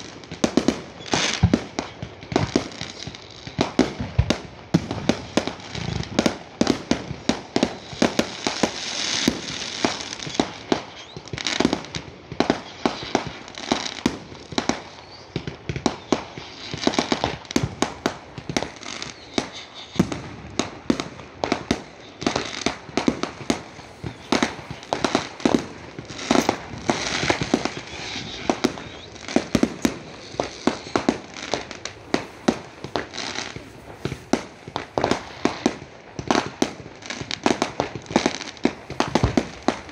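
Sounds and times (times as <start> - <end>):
fireworks bangs: 0.0 - 39.9
fireworks hiss: 0.0 - 39.9.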